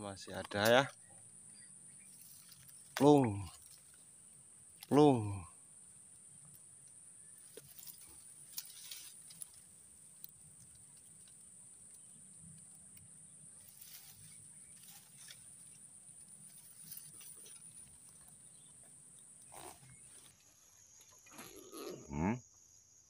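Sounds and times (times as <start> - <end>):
faint rustles: 7.3 - 11.5, 13.4 - 21.8.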